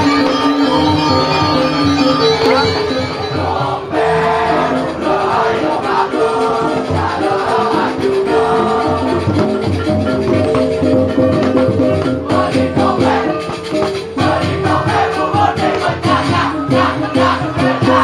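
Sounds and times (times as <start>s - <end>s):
gamelan music: 0.0s - 18.0s.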